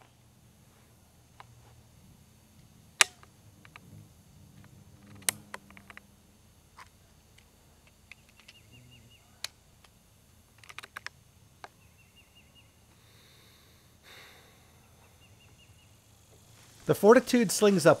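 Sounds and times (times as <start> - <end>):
air rifle bolt clicks: 3.0 - 3.8, 5.1 - 6.0, 10.6 - 11.8.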